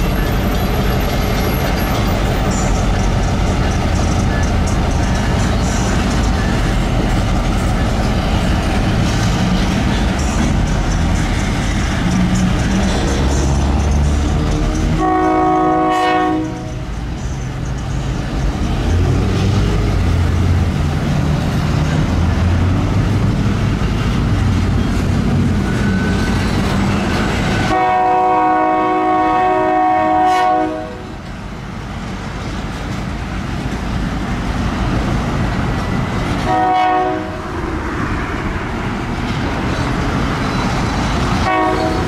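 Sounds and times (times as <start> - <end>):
diesel locomotive engine rumbling: 0.0 - 42.0
train horn blasts: 14.9 - 16.9, 27.6 - 31.2, 36.4 - 37.5, 41.4 - 42.0.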